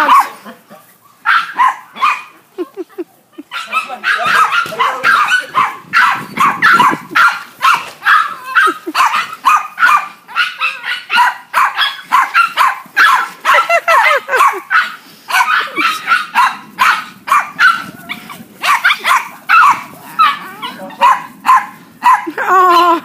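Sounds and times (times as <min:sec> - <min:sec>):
dog barking: 0:00.0 - 0:00.4, 0:01.2 - 0:02.4, 0:03.5 - 0:22.4.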